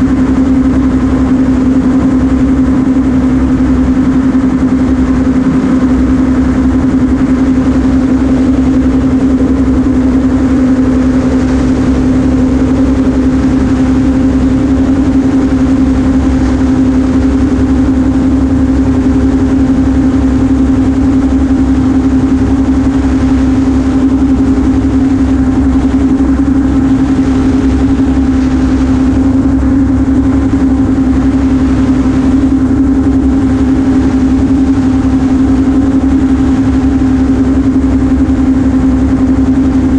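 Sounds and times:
gyroplane engine droning: 0:00.0 - 0:39.9
low rumble of air and rotor: 0:00.0 - 0:39.9.

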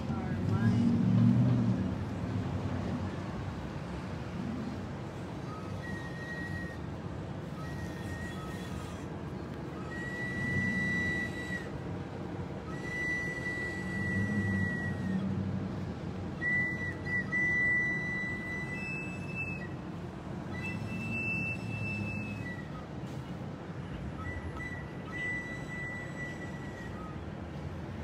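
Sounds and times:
flute long held notes: 0:05.4 - 0:11.9, 0:12.5 - 0:15.4, 0:16.3 - 0:23.3, 0:24.1 - 0:27.3.

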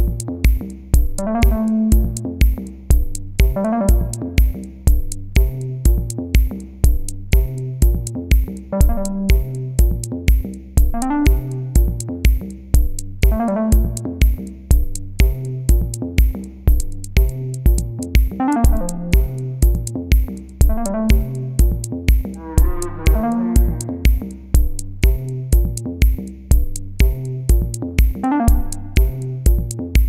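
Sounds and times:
electronic music with steady beat: 0:00.0 - 0:30.0.

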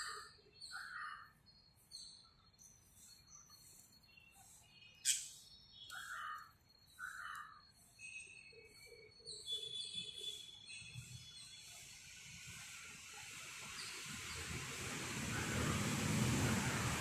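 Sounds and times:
birds chirping and calling: 0:00.0 - 0:11.9.

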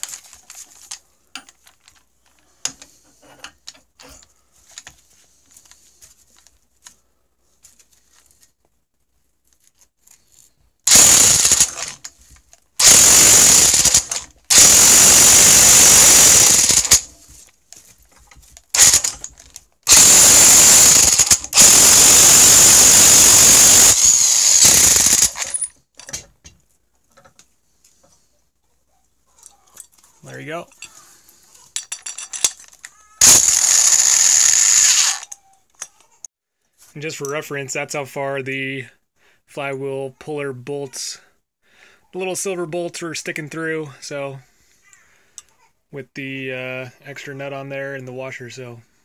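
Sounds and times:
impact wrench hammering: 0:10.9 - 0:12.0.

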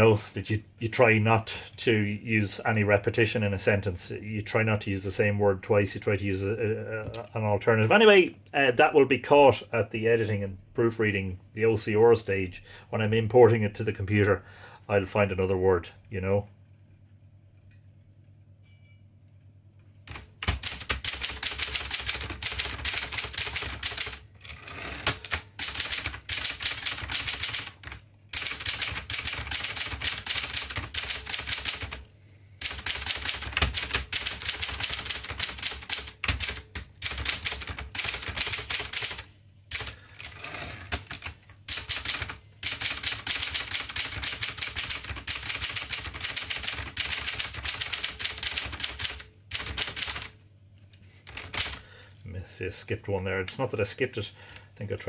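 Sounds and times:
manual typewriter typing: 0:20.1 - 0:32.0, 0:32.6 - 0:50.4, 0:51.3 - 0:51.8.

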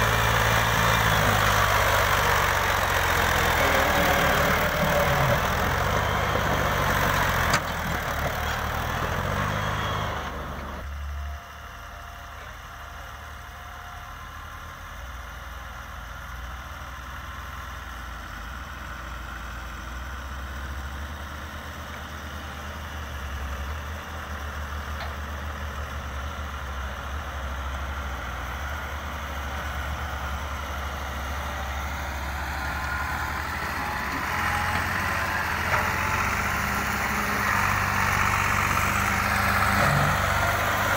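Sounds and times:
diesel tractor engine: 0:00.0 - 0:40.9.

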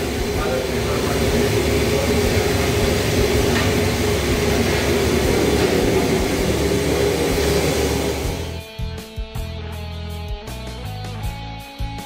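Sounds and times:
gas range and extractor roar: 0:00.0 - 0:08.7.

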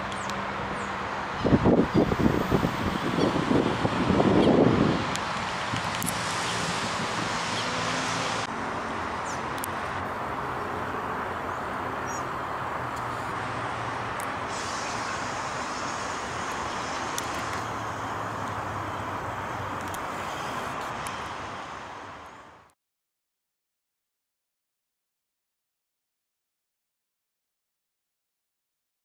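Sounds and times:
road traffic roar: 0:00.0 - 0:22.8.

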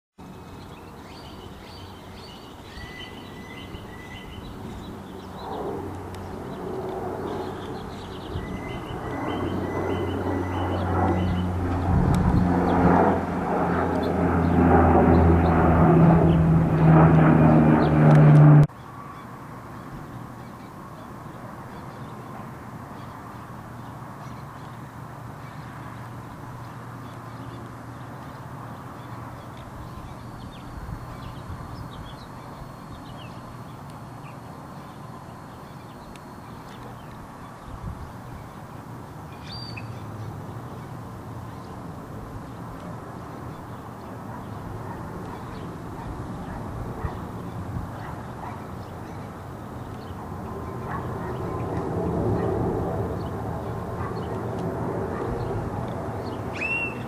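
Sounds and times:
birds chirping: 0:00.2 - 0:41.8, 0:42.4 - 0:51.8, 0:53.1 - 0:54.5, 0:55.1 - 0:57.0
propeller aircraft flying over: 0:00.2 - 0:57.0
faint steady rumble: 0:03.8 - 0:18.7.

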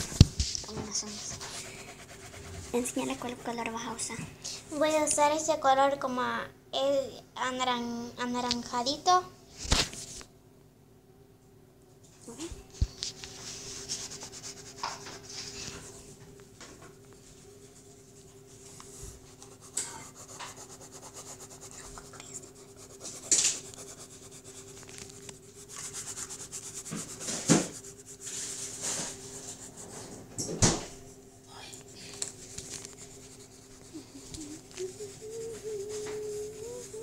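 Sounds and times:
colored pencil scratching on paper: 0:00.5 - 0:04.2, 0:13.4 - 0:16.0, 0:17.6 - 0:30.2, 0:31.5 - 0:37.0.

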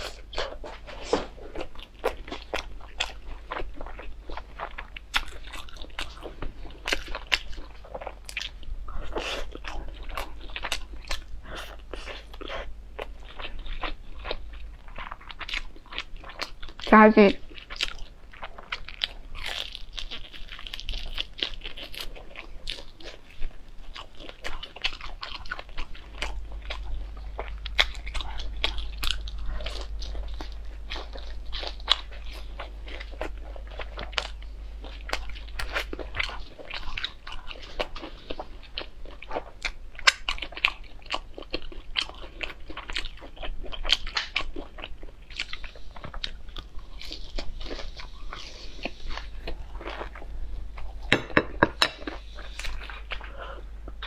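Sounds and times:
person chewing crispy food: 0:00.0 - 0:54.0.

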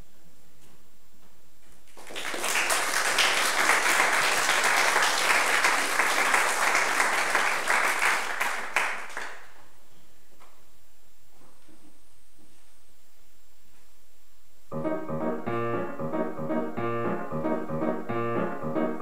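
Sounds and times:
audience applauding: 0:01.9 - 0:09.7.

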